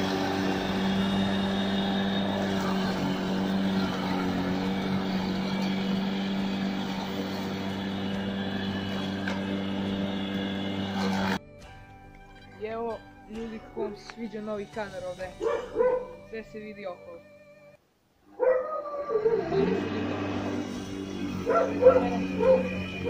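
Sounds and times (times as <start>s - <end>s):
electric lawn mower running: 0.0s - 11.4s, 19.2s - 23.0s.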